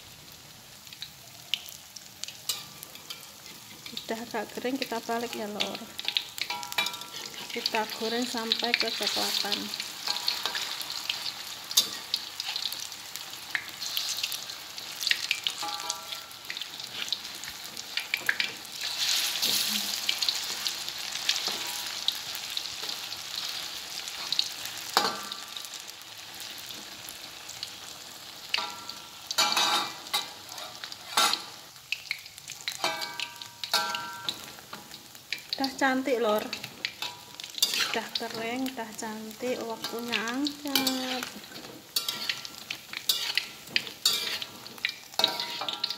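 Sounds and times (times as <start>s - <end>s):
balls deep-frying in hot oil: 0.0s - 45.9s
metal spatula scraping a wok: 6.0s - 8.2s, 18.8s - 20.6s, 29.4s - 31.6s, 36.6s - 38.2s, 39.8s - 45.9s.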